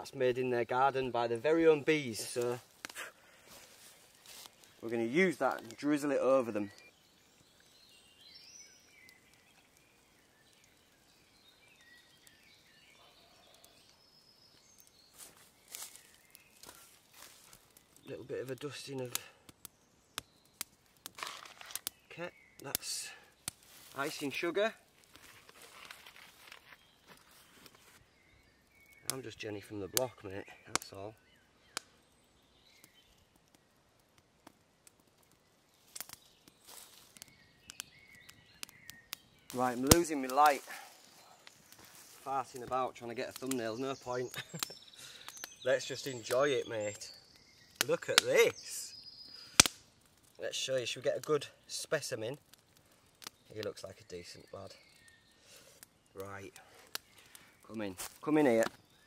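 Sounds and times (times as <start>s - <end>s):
birds chirping and whistling: 3.1s - 19.0s, 19.7s - 33.3s, 35.5s - 49.7s, 52.9s - 59.0s
faint clicks: 49.5s - 49.8s, 56.6s - 57.5s.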